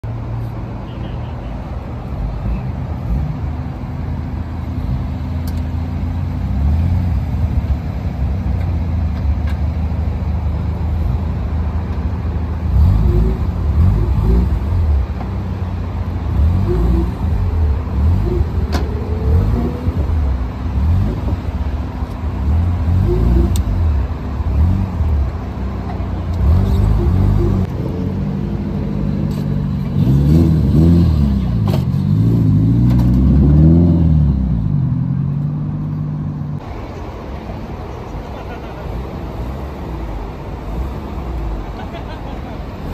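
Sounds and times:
car engines idling: 0.0s - 42.9s
engine revs: 12.4s - 36.6s.

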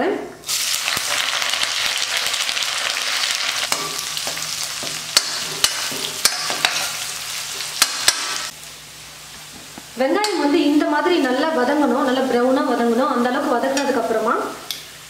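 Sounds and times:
food sizzling in hot oil: 0.4s - 15.0s.

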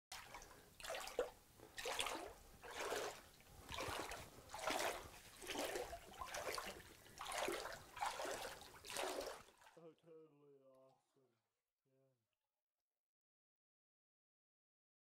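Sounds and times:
footsteps splashing through water: 0.1s - 9.8s.

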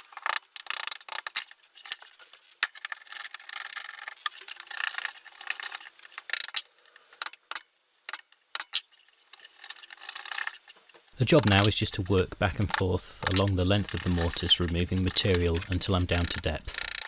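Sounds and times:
small clicks: 0.0s - 17.0s
chisel scraping wood: 11.4s - 17.0s.

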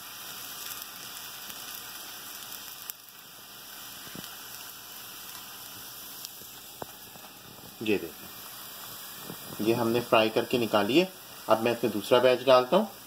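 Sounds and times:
hot oil sizzling in a frying pan: 0.0s - 13.0s
oil popping: 5.2s - 9.7s.

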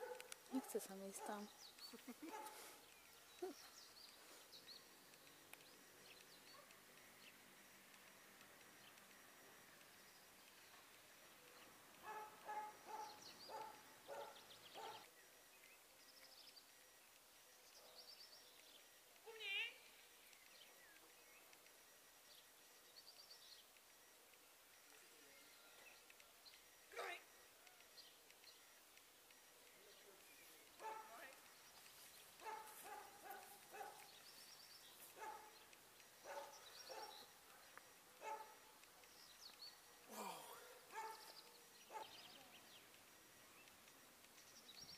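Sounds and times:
distant dog barking: 0.0s - 1.5s, 12.0s - 15.1s, 30.8s - 31.3s, 32.4s - 34.2s, 35.1s - 35.6s, 36.2s - 38.7s, 40.6s - 42.4s
faint bird chirps: 0.0s - 44.9s.

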